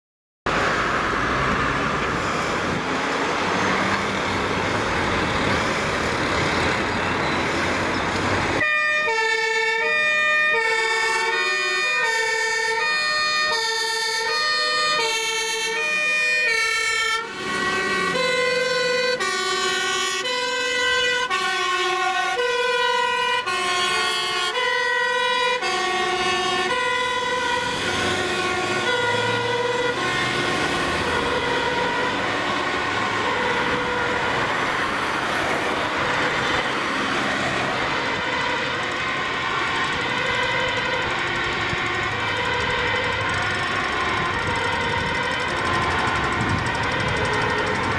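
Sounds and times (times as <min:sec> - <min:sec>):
loud rushing noise: 0:00.5 - 0:08.6
two-tone fire engine siren: 0:00.5 - 0:47.9.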